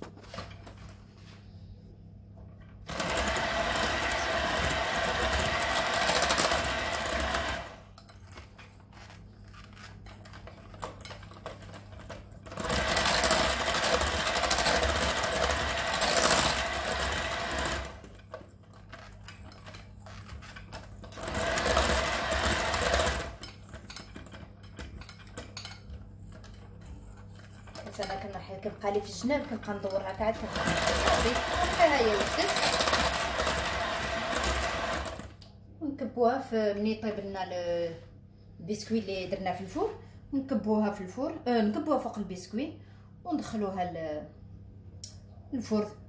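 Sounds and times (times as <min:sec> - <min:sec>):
electric hand mixer beating batter: 0:02.9 - 0:07.9, 0:12.4 - 0:18.2, 0:20.5 - 0:24.1, 0:30.2 - 0:35.4.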